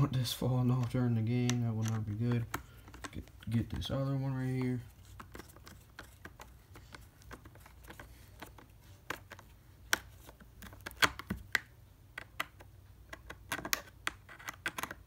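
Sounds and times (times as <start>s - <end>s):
screwdriver turning screw in plastic: 13.1s - 15.0s.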